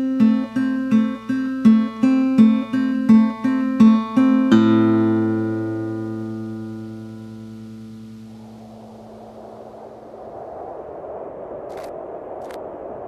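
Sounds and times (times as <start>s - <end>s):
plucked guitar music: 0.0s - 9.2s.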